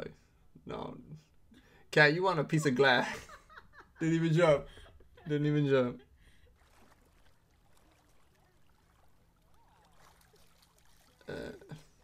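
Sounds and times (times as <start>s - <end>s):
faint water sounds: 5.3s - 12.0s.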